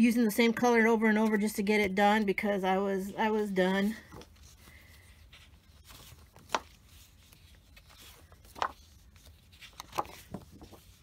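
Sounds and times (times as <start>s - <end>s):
paper sheets being handled: 3.0s - 11.0s.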